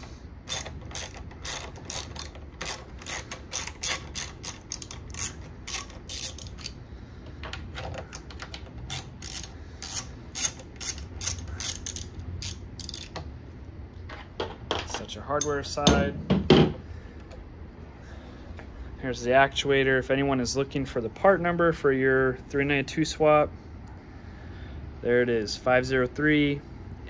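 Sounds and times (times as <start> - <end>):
ratchet wrench clicking: 0.0 - 6.8, 8.1 - 13.2.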